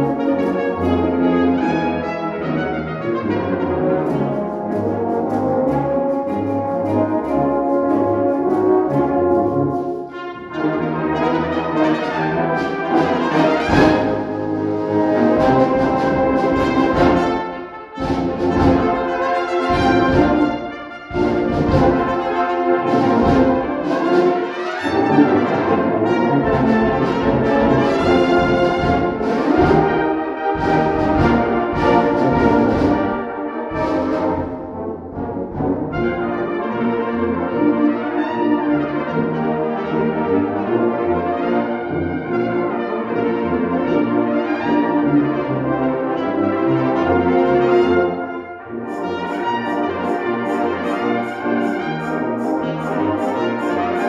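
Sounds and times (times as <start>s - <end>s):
brass band playing: 0.0s - 54.0s
solo cornet melody: 40.8s - 54.0s.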